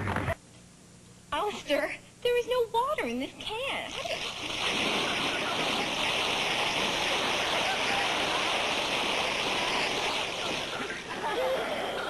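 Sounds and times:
water pouring heavily: 0:04.0 - 0:11.8.

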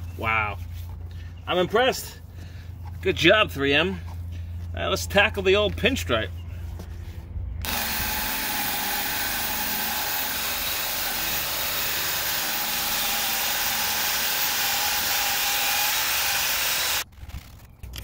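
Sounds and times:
drill whirring: 0:07.6 - 0:17.1.

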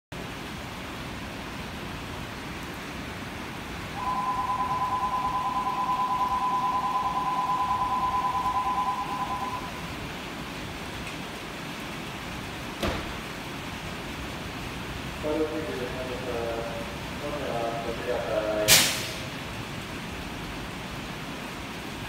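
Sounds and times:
rain hissing: 0:00.2 - 0:22.0
electronic departure bell ringing: 0:04.0 - 0:10.0.

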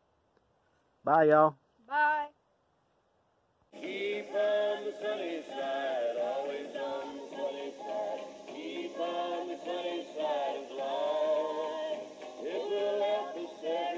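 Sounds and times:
song with singing voices: 0:03.8 - 0:13.9.

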